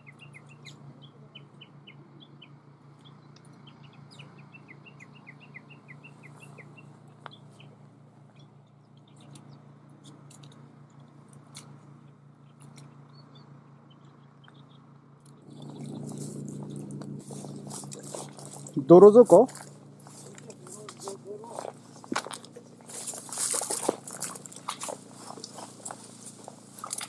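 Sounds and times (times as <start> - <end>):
faint bird chirps: 0.0 - 10.2, 12.4 - 18.9.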